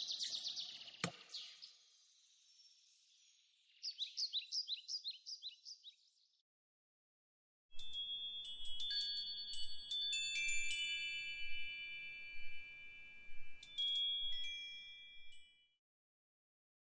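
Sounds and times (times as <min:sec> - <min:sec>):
metal wind chimes tinkling: 0:07.8 - 0:15.8.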